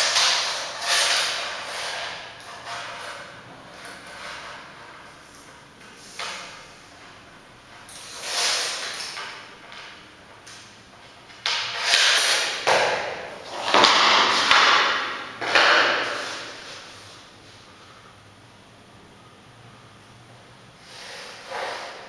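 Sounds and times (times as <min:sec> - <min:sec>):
flooring planks scraping: 0:00.0 - 0:05.0, 0:08.0 - 0:09.2, 0:11.5 - 0:17.6, 0:20.8 - 0:22.0.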